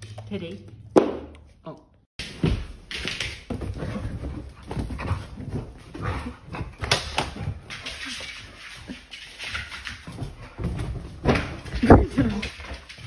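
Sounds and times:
dogs play-fighting: 3.5s - 13.0s.

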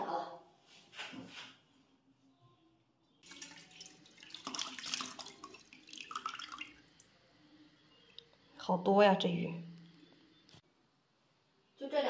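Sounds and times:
water pouring into metal bowl: 3.2s - 7.1s.

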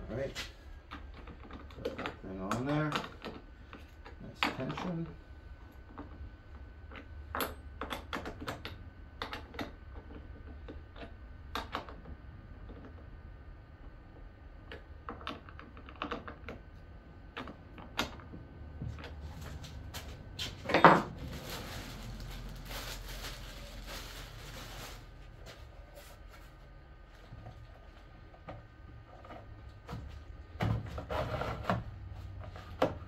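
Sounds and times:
plastic packaging crinkling: 21.0s - 26.2s.

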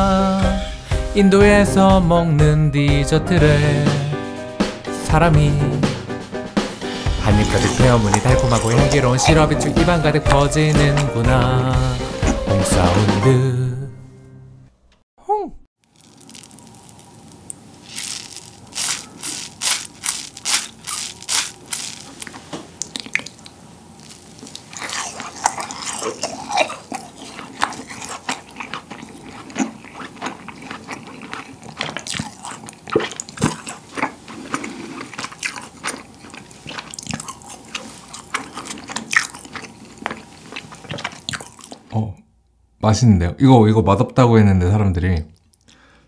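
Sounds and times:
close-miked wet chewing: 7.2s - 12.5s, 15.9s - 42.0s.

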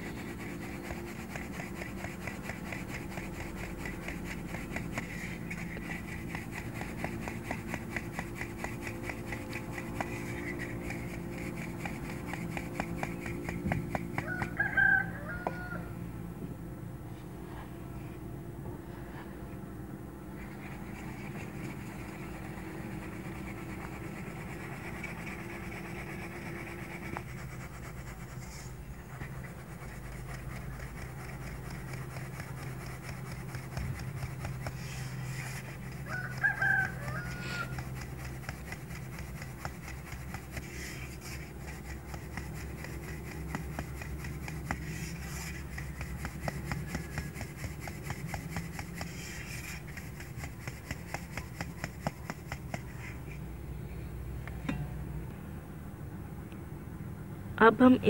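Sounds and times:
steady low hum: 0.0s - 58.0s
chicken calling: 36.1s - 37.8s.

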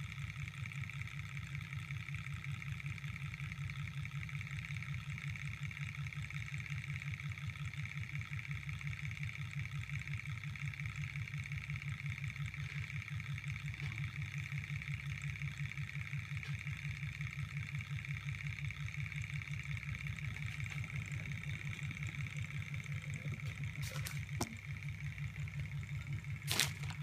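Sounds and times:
hot-air engine beating rhythmically: 0.0s - 27.0s
steady high whine: 6.4s - 27.0s.

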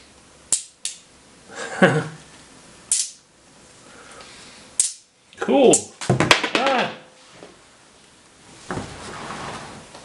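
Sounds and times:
magnets clicking together: 0.5s - 1.1s, 2.9s - 3.2s, 4.8s - 5.1s.

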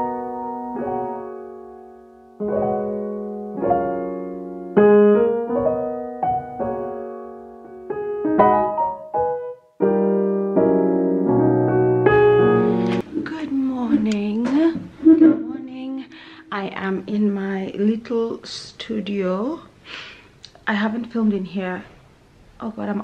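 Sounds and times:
slow piano chords: 0.0s - 13.1s.

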